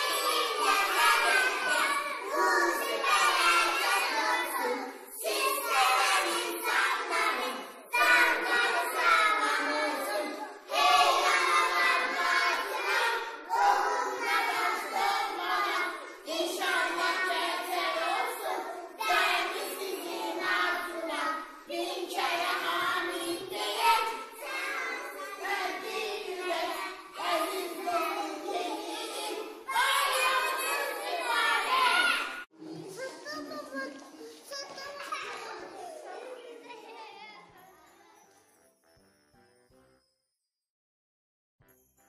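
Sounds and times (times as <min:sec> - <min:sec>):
children singing in unison: 0:00.0 - 0:32.5.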